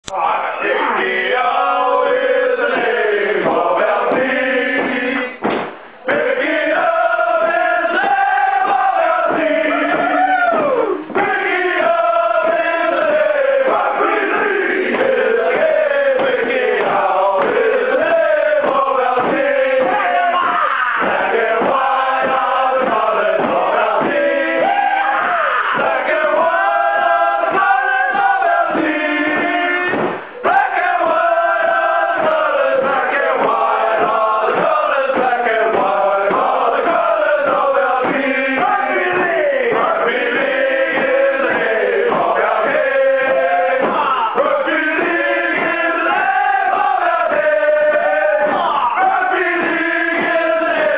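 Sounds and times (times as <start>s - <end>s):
men singing in chorus: 0.1s - 50.9s.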